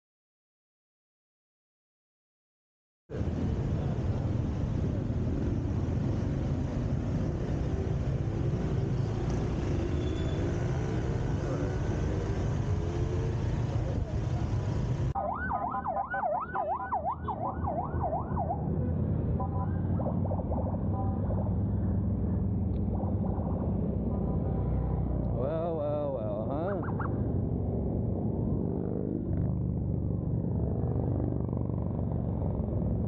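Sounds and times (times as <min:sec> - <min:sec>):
road traffic: 0:03.1 - 0:33.0
siren wailing: 0:15.2 - 0:22.1, 0:26.6 - 0:27.3.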